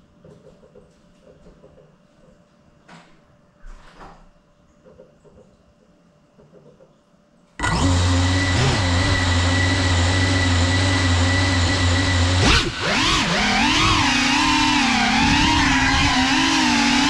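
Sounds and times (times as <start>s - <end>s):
drone motors whining: 7.6s - 17.0s.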